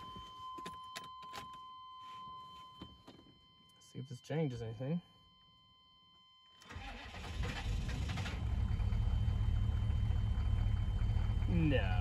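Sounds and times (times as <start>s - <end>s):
diesel engine cranking and idling: 6.6s - 12.0s.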